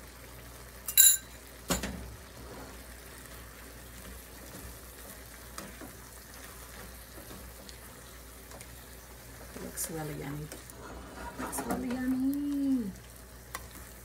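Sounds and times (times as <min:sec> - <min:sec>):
stir-fry sizzling in wok: 0:00.0 - 0:14.0
teaspoon clinking on wok: 0:00.9 - 0:01.4.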